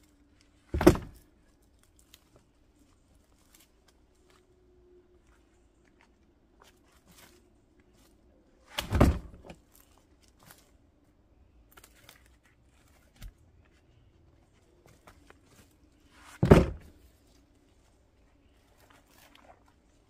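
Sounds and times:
wood dropped into plastic wheelbarrow: 0.7 - 1.2, 8.7 - 9.6, 16.2 - 17.0
footsteps in brush: 1.5 - 4.5, 5.2 - 8.8
rustling in brush: 12.2 - 20.0.

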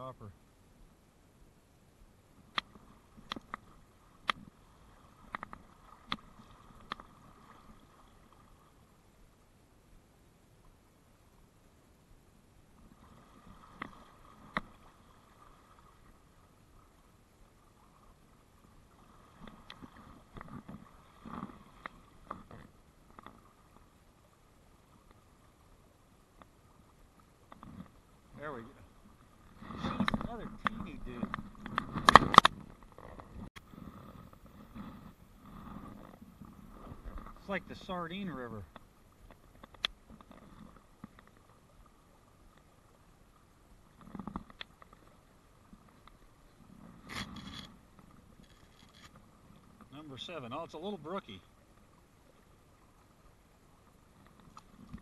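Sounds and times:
river water flowing and lapping: 0.0 - 55.0
fishing rod and line clicks: 2.5 - 4.5, 29.9 - 33.3, 38.7 - 40.4, 44.0 - 45.0, 47.0 - 49.2.

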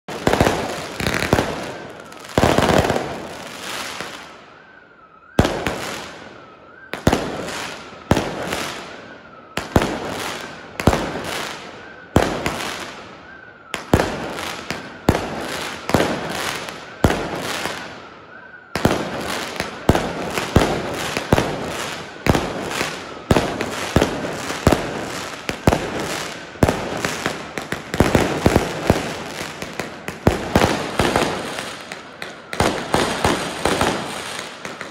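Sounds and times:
fireworks banging and echoing: 0.0 - 4.7, 5.3 - 34.9.

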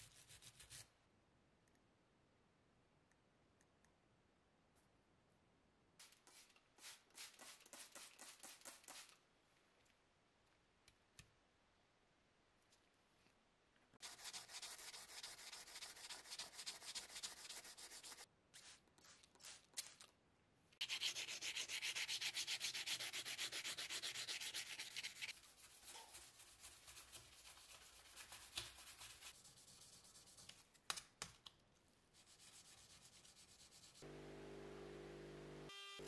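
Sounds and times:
sandpaper rubbing metal: 14.0 - 18.2, 20.8 - 30.4.

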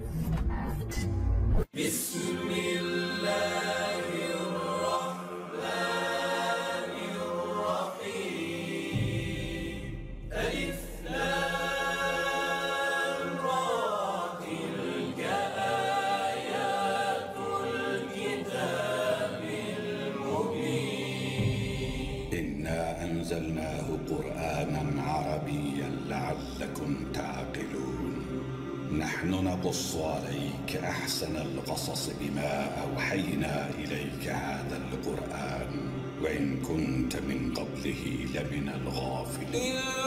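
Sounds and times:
wordless choral singing: 1.6 - 40.0
low bass layer: 9.0 - 12.6, 21.4 - 29.6.

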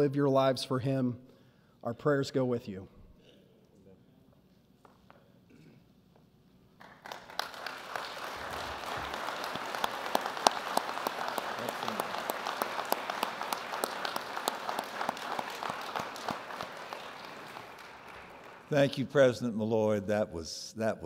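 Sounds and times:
congregation applauding: 6.8 - 19.5.

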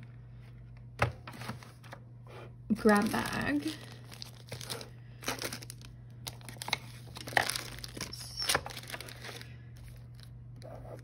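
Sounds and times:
packaging crinkling: 2.9 - 10.7.

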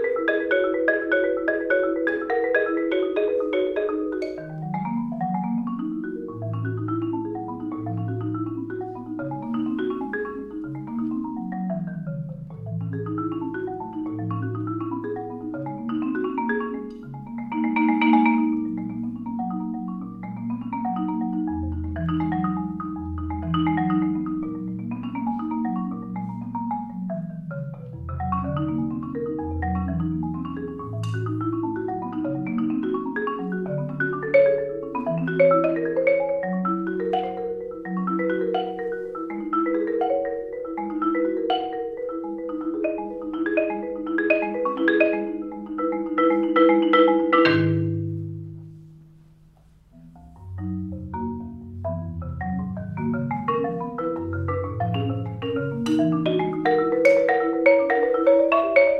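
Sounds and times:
solo marimba playing: 0.0 - 58.9.

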